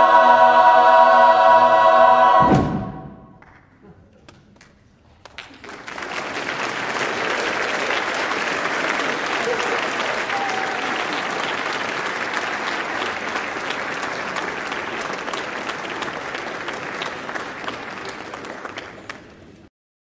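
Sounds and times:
audience applauding: 4.3 - 19.6.

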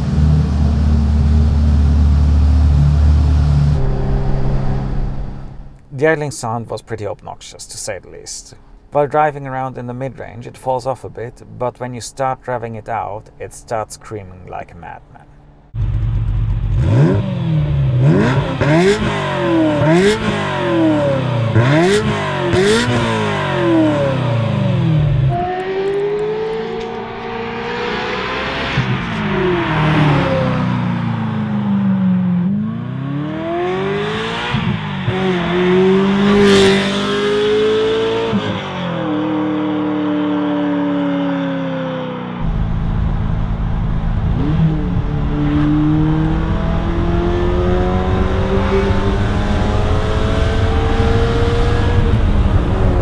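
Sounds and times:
car driving past: 2.3 - 5.9, 23.3 - 40.5
sports car engine revving: 15.7 - 53.0.

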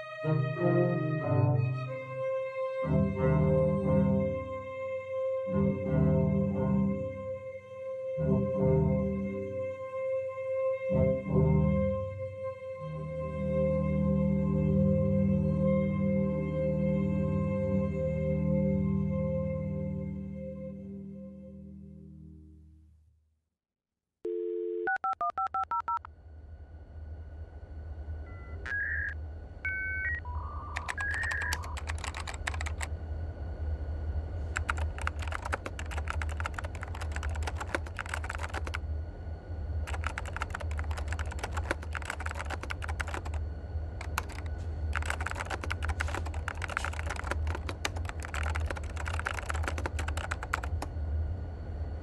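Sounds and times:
low hum: 0.0 - 23.0, 26.0 - 52.0
short electronic beeps: 28.3 - 31.6
rapid keyboard typing: 30.7 - 32.9, 34.5 - 38.8, 39.8 - 43.4, 44.0 - 50.9.

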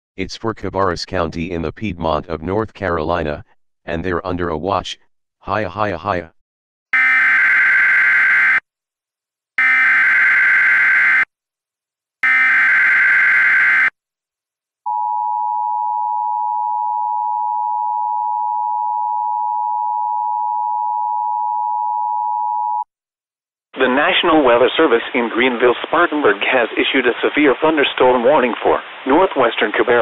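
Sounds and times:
emergency attention tone: 7.0 - 8.6, 9.6 - 11.3, 12.2 - 13.9.

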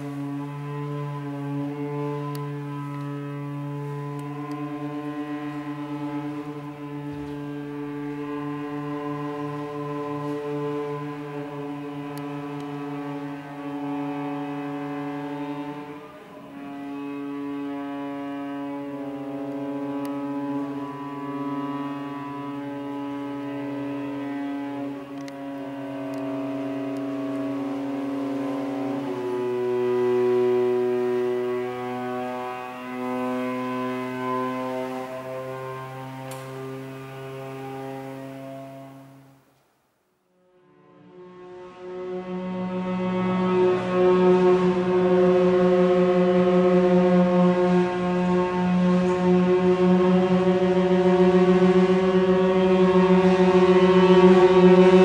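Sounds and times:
cello bowed low drone: 0.0 - 39.5, 40.2 - 55.0
steady low hum: 0.0 - 39.5.

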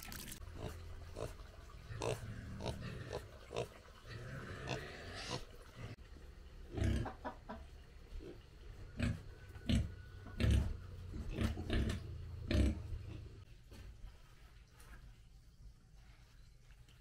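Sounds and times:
pigs grunting: 0.5 - 6.0, 6.6 - 7.3, 8.2 - 13.4.

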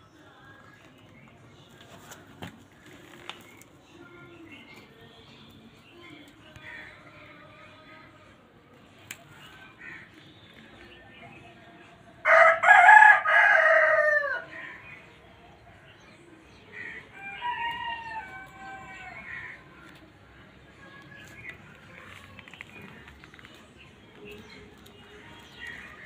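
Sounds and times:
rooster crowing: 12.3 - 14.5.

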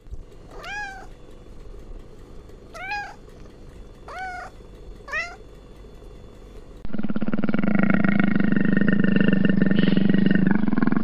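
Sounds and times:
cat meowing: 0.5 - 1.1, 2.7 - 3.2, 4.1 - 5.4.

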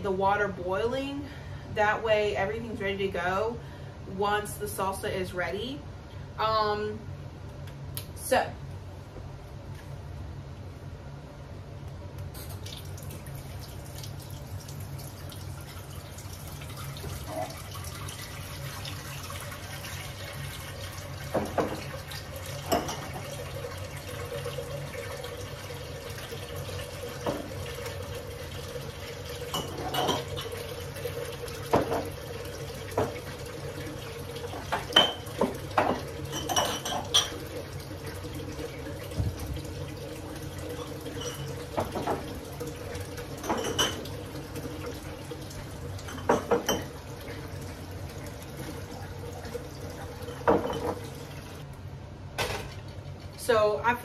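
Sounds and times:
water running from tap: 12.4 - 51.7
glass jars and pots clinking: 22.6 - 23.2, 29.5 - 30.6, 34.7 - 37.4, 40.8 - 42.2, 43.4 - 44.1, 46.0 - 46.9, 50.0 - 51.2.

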